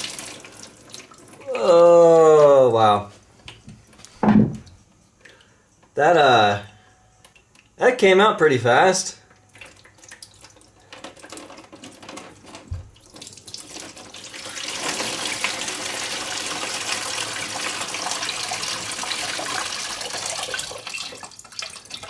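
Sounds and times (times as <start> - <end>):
coolant splashing into plastic tub: 0.0 - 1.5, 9.4 - 22.0.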